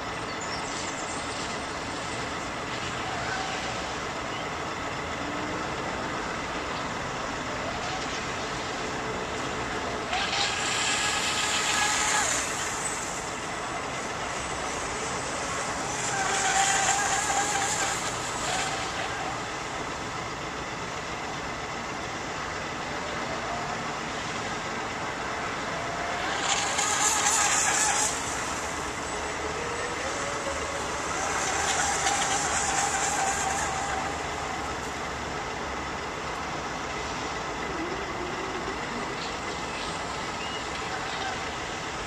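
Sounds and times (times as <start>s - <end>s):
boat motor whining: 0.0s - 42.0s
surges of hiss: 0.6s - 42.0s.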